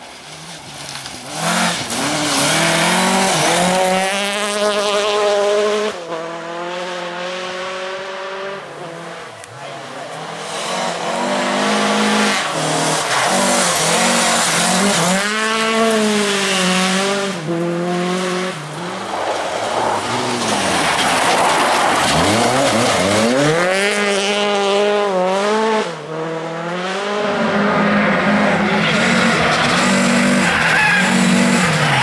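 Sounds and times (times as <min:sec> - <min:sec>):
gravel spraying: 0:00.0 - 0:04.8, 0:09.4 - 0:24.6
rally car engine revving: 0:00.0 - 0:32.0
tyres scrabbling: 0:18.6 - 0:23.9.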